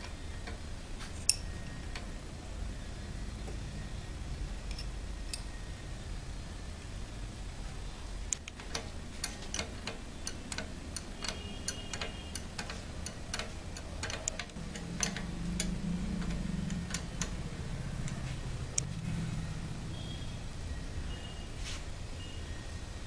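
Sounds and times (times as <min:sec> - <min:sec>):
metallic clicks of bolts and nuts: 0:01.2 - 0:02.1, 0:08.3 - 0:17.4.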